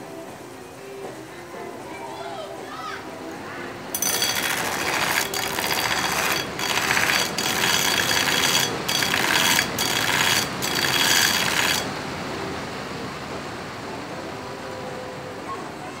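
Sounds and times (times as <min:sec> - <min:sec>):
belt grinder running: 0:04.0 - 0:11.9
knife blade grinding on belt grinder: 0:04.0 - 0:11.9.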